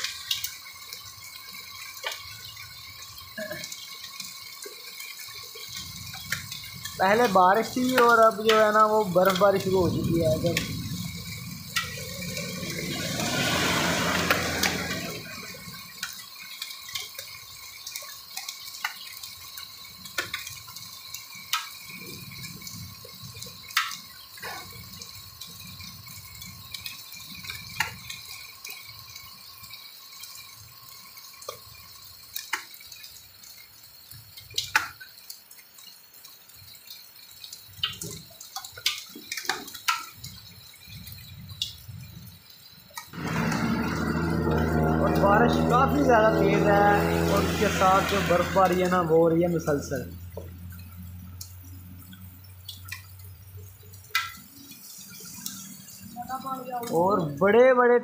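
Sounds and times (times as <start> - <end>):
heavy rain on wet ground: 0.0 - 58.0
hailstones striking: 6.1 - 15.9
loud rush of noise: 12.0 - 15.4, 43.2 - 48.8.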